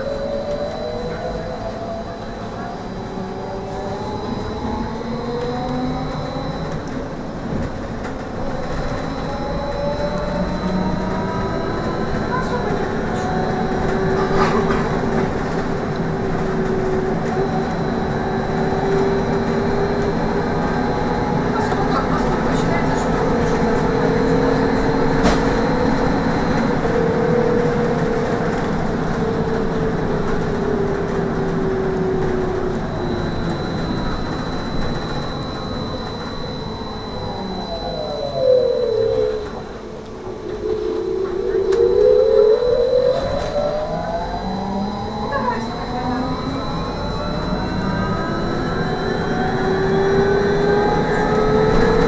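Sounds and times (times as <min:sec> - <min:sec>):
bus cabin noise: 0:00.0 - 0:52.0
electric motor whining: 0:31.6 - 0:52.0
thin high-pitched tone: 0:32.9 - 0:51.4.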